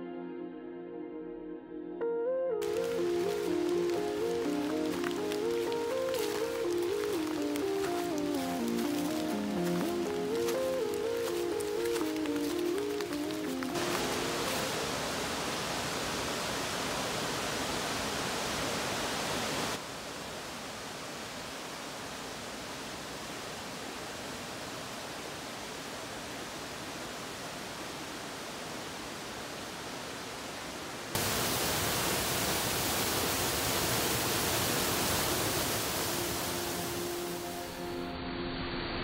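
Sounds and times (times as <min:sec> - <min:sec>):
faint music: 0:02.6 - 0:15.3, 0:36.1 - 0:38.8
mountain stream rushing over rocks: 0:02.6 - 0:37.9.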